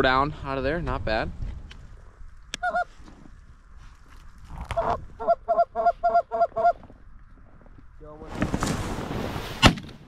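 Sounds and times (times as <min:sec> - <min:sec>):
goose honking: 0:02.6 - 0:02.9, 0:04.8 - 0:06.8.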